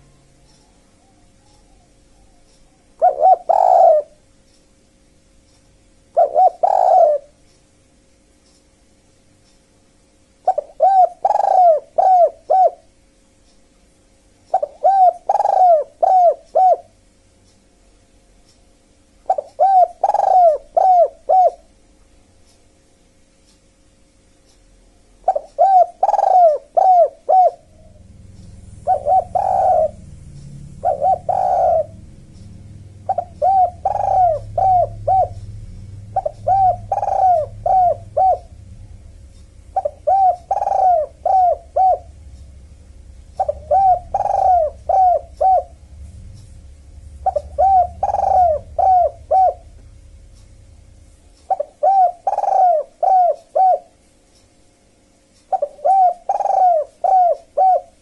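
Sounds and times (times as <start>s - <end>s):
doves cooing: 0.0s - 4.2s, 6.1s - 7.4s, 10.4s - 12.9s, 14.5s - 17.0s, 19.3s - 21.8s, 25.2s - 54.0s, 55.5s - 58.0s
low rumble: 27.6s - 51.5s.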